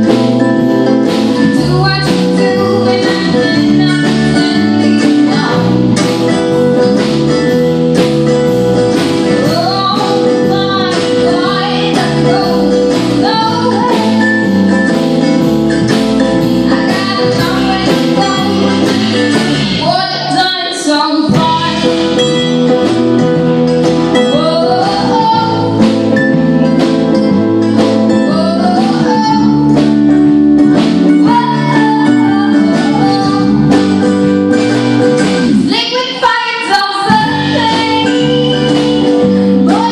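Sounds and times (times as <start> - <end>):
strummed acoustic guitar: 0.0 - 20.6, 21.2 - 39.9
drum kit beat: 0.0 - 39.9
electric bass: 0.0 - 39.9
mandolin: 0.0 - 39.9
woman singing: 1.2 - 6.0, 9.2 - 14.8, 16.4 - 22.7, 24.1 - 26.1, 27.9 - 30.1, 31.1 - 34.2, 35.6 - 39.9.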